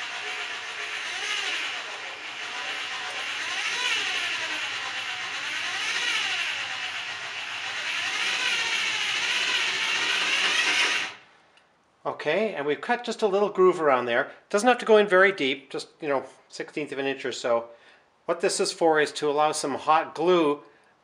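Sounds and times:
electric drill whine: 0.0 - 11.2.

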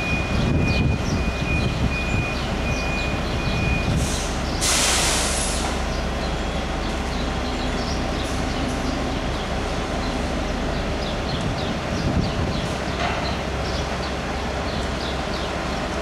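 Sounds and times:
diesel engine rumble: 0.0 - 16.0
loud hiss: 4.0 - 5.9.

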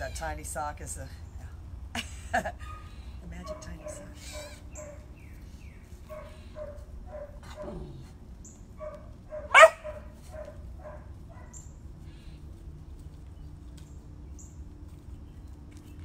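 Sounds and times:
dog barking sharply: 8.9 - 11.0.

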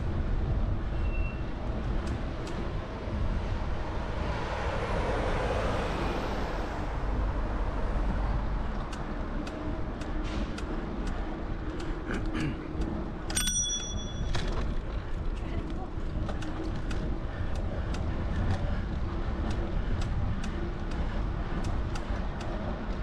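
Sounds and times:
road traffic noise: 0.0 - 23.0
steady low rumble: 0.0 - 23.0
faint ticks: 2.0 - 2.6, 16.3 - 23.0
vehicle passing: 2.3 - 11.9.

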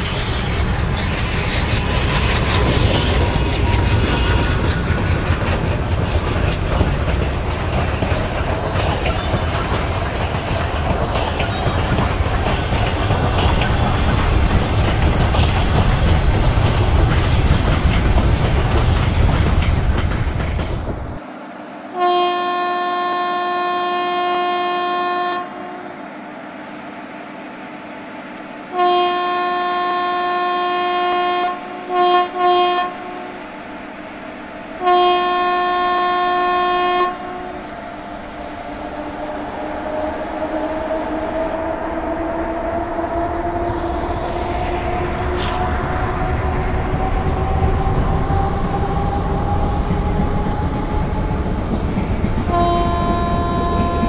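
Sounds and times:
train wheels clattering on rails: 0.0 - 21.2, 45.3 - 54.0
locomotive horn blasts: 21.9 - 26.0, 28.7 - 33.4, 34.8 - 37.6, 52.5 - 54.0.

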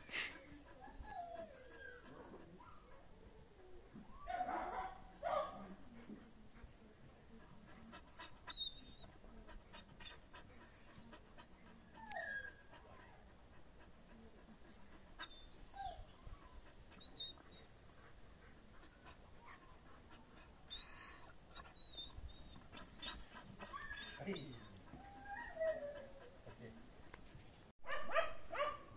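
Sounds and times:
dog whining: 0.4 - 4.7, 7.8 - 13.3, 14.2 - 17.7, 19.4 - 26.4.

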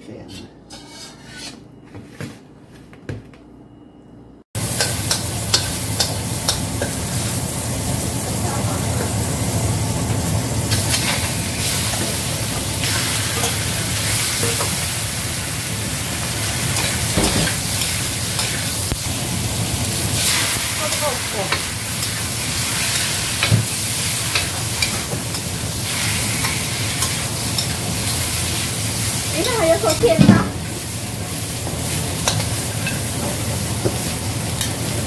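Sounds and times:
metal ladle scraping a wok: 0.3 - 1.7
food sizzling in hot oil: 4.6 - 35.0.

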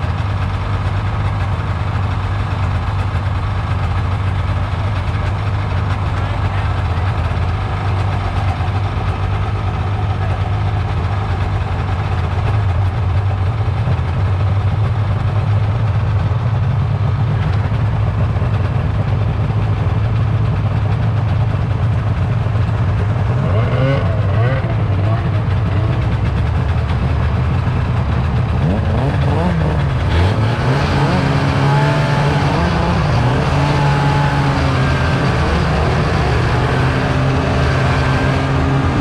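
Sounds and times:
snowmobile engines idling: 0.0 - 39.0
wavering higher engine sounds: 17.2 - 39.0.

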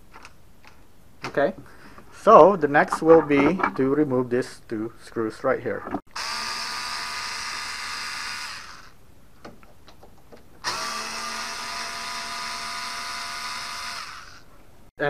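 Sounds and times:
cordless drill motor whine: 6.1 - 9.0, 10.6 - 14.4.

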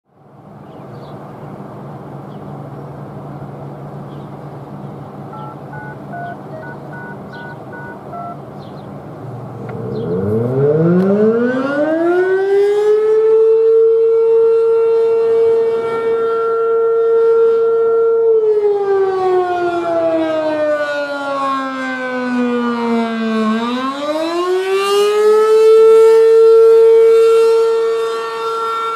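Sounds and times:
rotating siren wailing: 5.3 - 8.4, 9.8 - 14.3
short beeps: 5.3 - 8.4.

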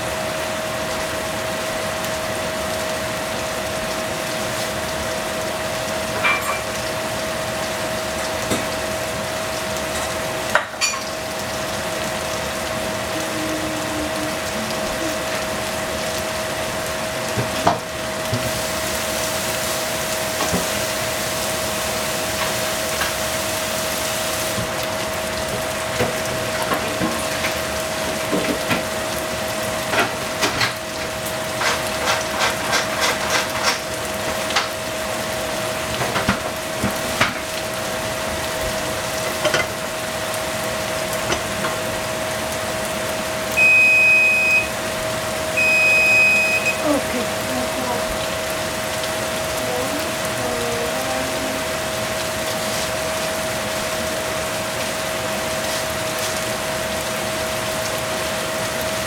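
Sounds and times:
sauce sizzling in a frying pan: 0.0 - 59.0
steady hum: 43.5 - 52.4.

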